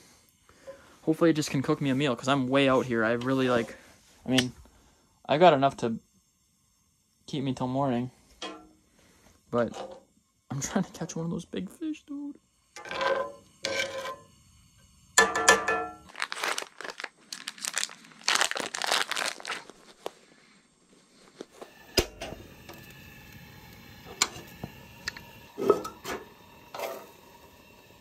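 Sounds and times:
sausage sizzling on a griddle: 0.0 - 20.6, 21.5 - 28.0
plastic packaging crinkling and tearing: 16.0 - 20.2.

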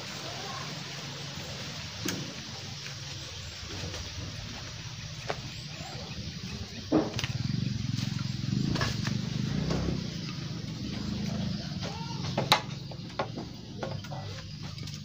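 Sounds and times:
steady low hum: 0.0 - 15.0
bamboo poles knocking: 6.9 - 7.4, 11.8 - 15.0.

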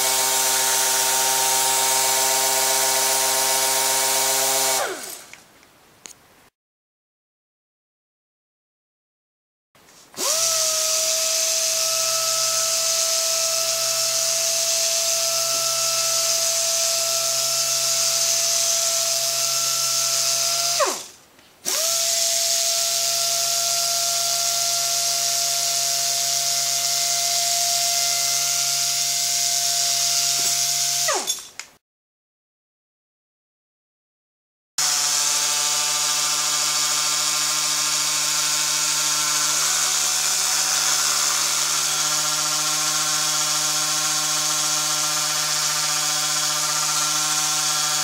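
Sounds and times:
orbital sander whining: 0.0 - 5.3, 10.2 - 21.1, 34.8 - 48.0.

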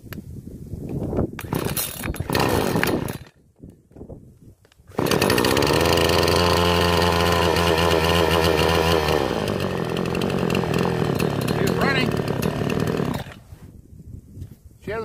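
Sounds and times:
chainsaw idling: 1.4 - 3.3, 4.9 - 13.5
chainsaw pull-start: 1.4 - 3.4, 4.9 - 13.6.

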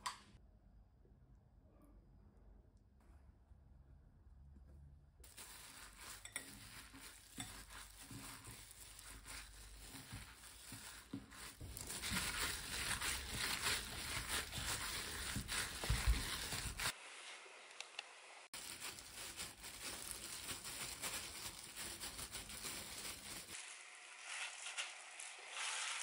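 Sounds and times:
hand squishing meat filling: 5.2 - 16.9, 18.5 - 23.6
plastic glove crinkling: 5.2 - 17.0, 18.5 - 26.0.

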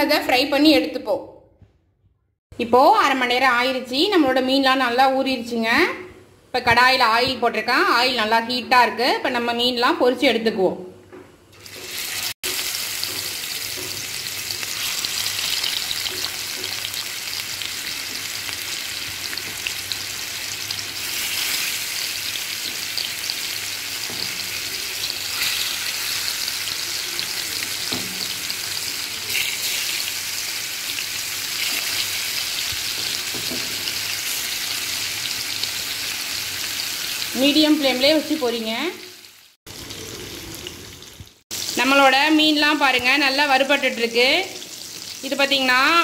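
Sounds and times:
fish sizzling in a frying pan: 11.6 - 38.1, 44.1 - 46.0.

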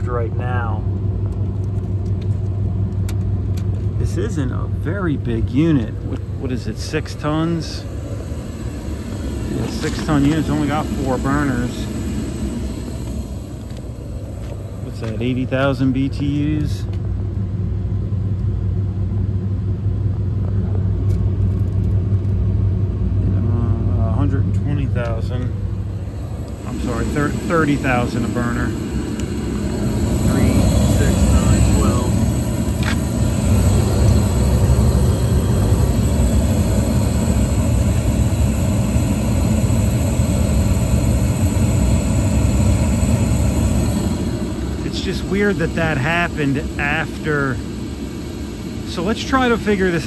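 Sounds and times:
gas burners low rumble: 0.0 - 50.0
rooftop heating unit humming: 0.0 - 50.0.

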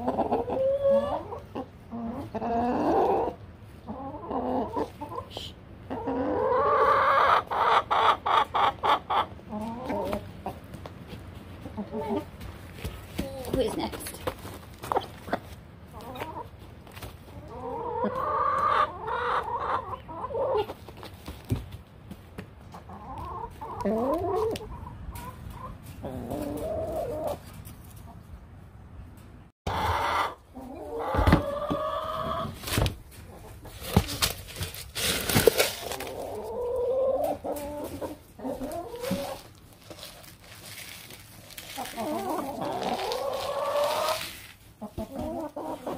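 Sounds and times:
hens clucking: 0.0 - 21.4, 22.4 - 28.4, 29.7 - 45.9.

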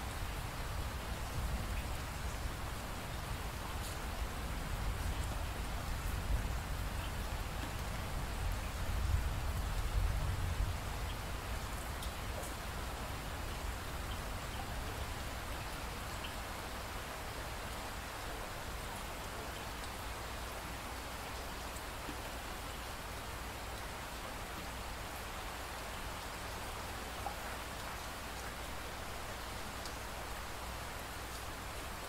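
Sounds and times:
steady rain hiss: 0.0 - 32.0
raindrop ticks: 11.8 - 12.6.

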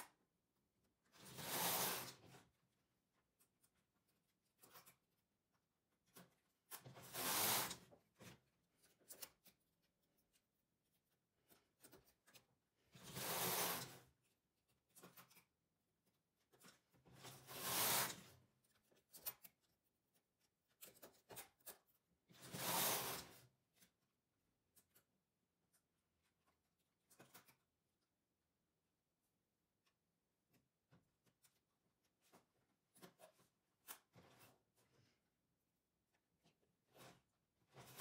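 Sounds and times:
knitting machine carriage swish: 16.5 - 19.5, 20.8 - 23.5.

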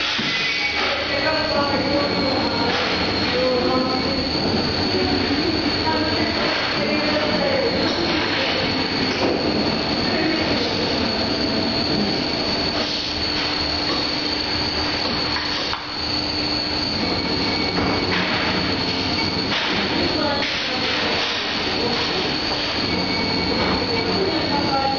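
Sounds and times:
dough sheeter machine whining: 0.0 - 24.9.

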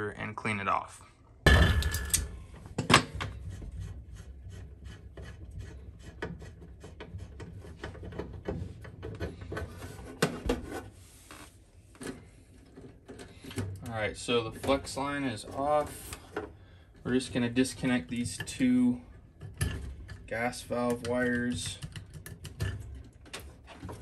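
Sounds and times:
heavy thud: 1.5 - 2.2.

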